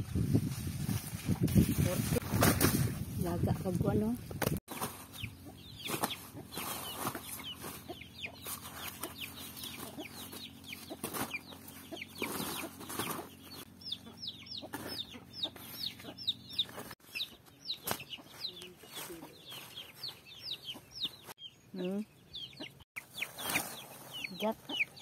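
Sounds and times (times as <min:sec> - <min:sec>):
corn ears rustling into sack: 0:00.0 - 0:04.1
chickens cheeping: 0:04.7 - 0:25.0.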